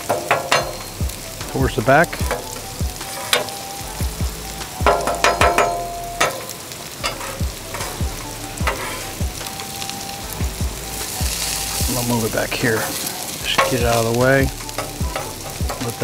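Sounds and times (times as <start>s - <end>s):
food sizzling on a griddle: 0.0s - 16.0s
metal spatula scraping hot plate: 2.3s - 3.6s, 4.9s - 10.0s, 12.6s - 16.0s.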